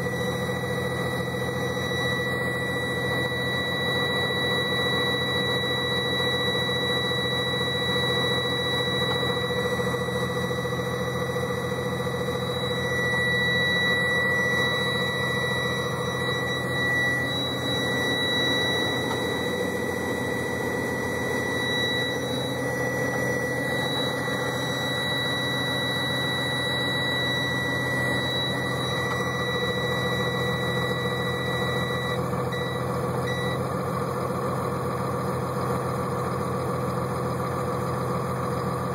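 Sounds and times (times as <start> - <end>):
warning buzzer: 0.0 - 33.6
diesel engine idling: 0.0 - 38.9.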